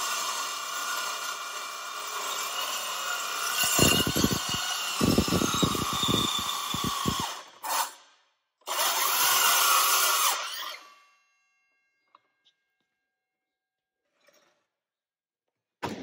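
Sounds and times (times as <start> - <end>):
circular saw cutting metal: 0.0 - 8.0, 8.7 - 11.0.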